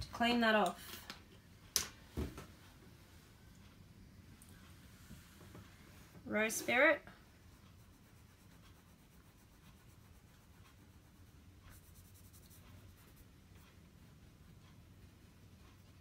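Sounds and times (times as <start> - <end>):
paintbrush scratching: 7.4 - 16.0.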